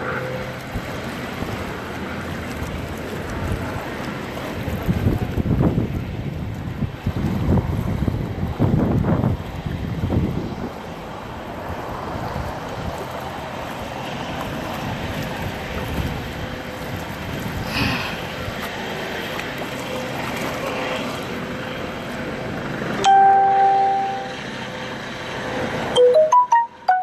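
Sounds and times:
water swishing and splashing: 0.0s - 22.8s
wind on microphone: 0.6s - 18.7s
loud steady tone: 23.0s - 24.6s, 25.9s - 27.0s.

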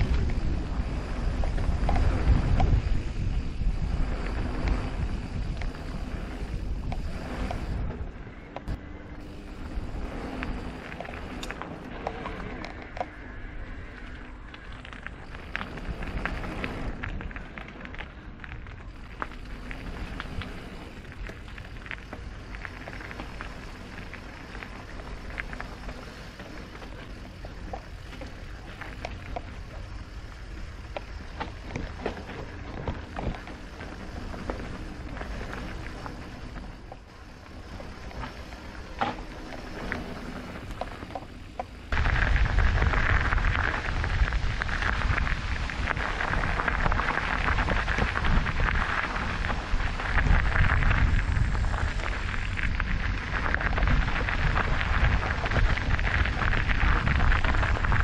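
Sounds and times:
bike rattling: 0.0s - 58.0s
tyres crunching over gravel: 0.0s - 58.0s.

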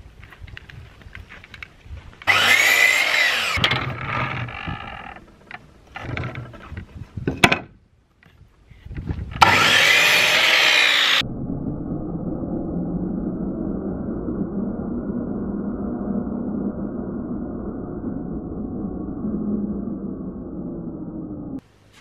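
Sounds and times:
mitre saw cutting wood: 2.3s - 5.1s, 9.4s - 11.2s.

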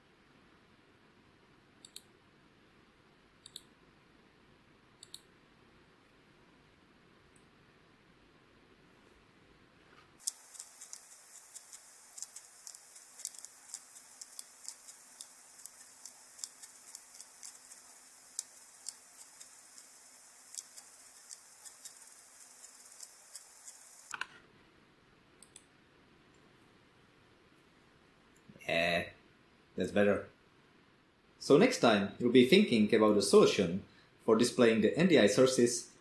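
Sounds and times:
keyboard and mouse clicking: 1.8s - 2.1s, 3.4s - 3.7s, 5.0s - 5.3s, 10.2s - 24.3s, 25.4s - 25.7s.

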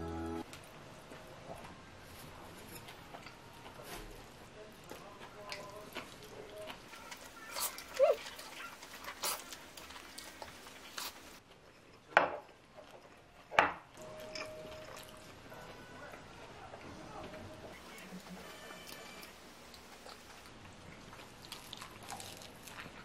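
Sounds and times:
noodles slurped and chewed: 2.9s - 12.1s, 17.9s - 23.0s.

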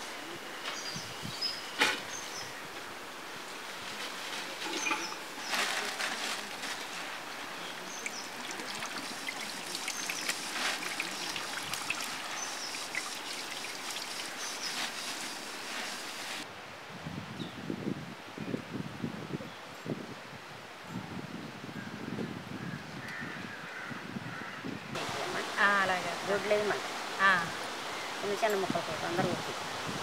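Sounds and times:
leafy greens rustling in a pot: 3.6s - 16.4s.

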